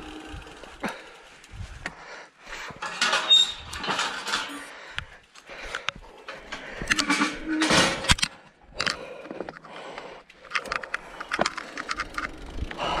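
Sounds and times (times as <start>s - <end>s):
mountain bike rattling: 0.0s - 8.2s, 10.3s - 13.0s.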